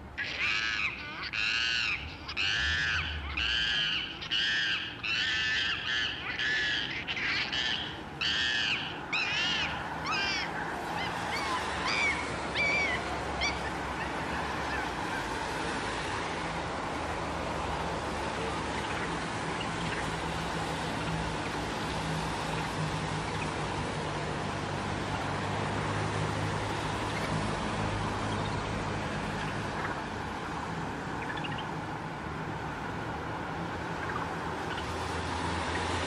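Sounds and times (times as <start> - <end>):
monkey high calls: 0.2 - 15.4.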